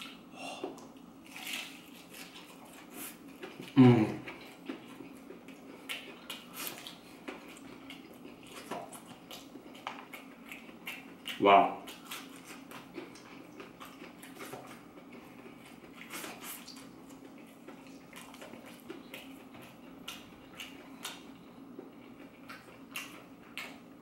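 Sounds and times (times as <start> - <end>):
chewing and crunching: 0.0 - 24.0
faint steady hum: 0.0 - 24.0.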